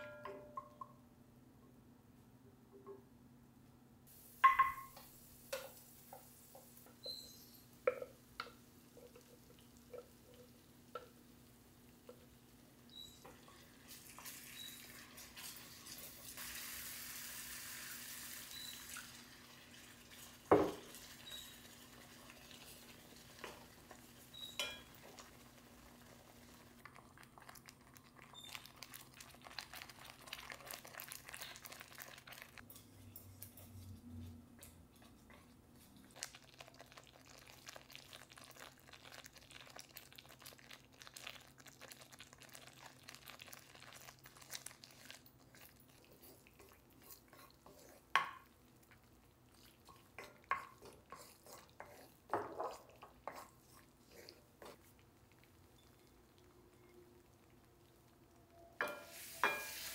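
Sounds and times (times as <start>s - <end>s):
water hissing into hot pan: 4.1s - 7.6s, 12.9s - 26.8s, 58.8s - 59.9s
wooden spoon stirring in skillet: 4.4s - 58.1s, 58.8s - 59.9s.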